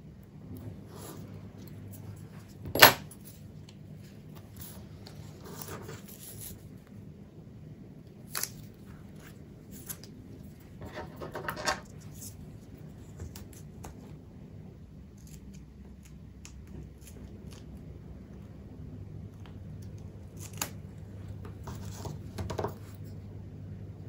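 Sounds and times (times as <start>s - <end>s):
paper and tape rustling: 4.0s - 6.7s.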